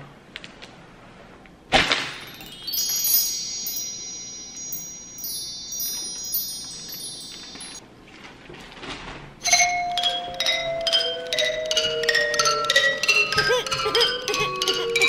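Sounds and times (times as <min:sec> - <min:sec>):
wind chime tones ringing: 0:02.1 - 0:07.8, 0:09.4 - 0:15.0.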